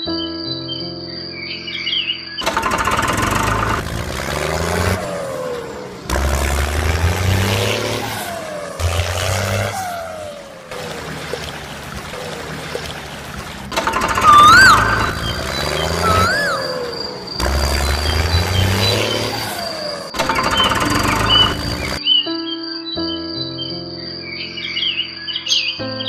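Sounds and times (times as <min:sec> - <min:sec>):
vehicle engine rumble: 0:02.4 - 0:22.0
falling pitch sweeps: 0:13.7 - 0:22.0.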